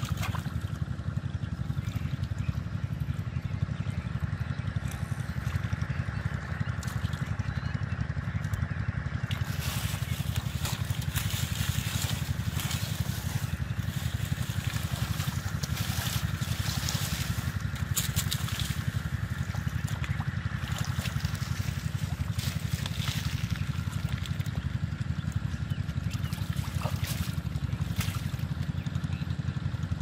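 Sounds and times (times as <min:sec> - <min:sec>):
wet plants rustling: 0:00.0 - 0:00.6, 0:09.3 - 0:24.6, 0:26.1 - 0:28.6
low engine drone: 0:00.0 - 0:30.0
muddy water splashing: 0:00.0 - 0:30.0.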